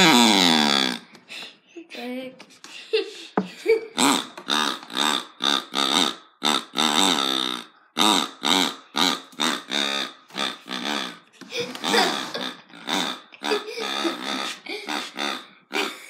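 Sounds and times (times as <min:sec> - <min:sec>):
squealing pig toy: 0:00.0 - 0:01.1, 0:03.9 - 0:16.0.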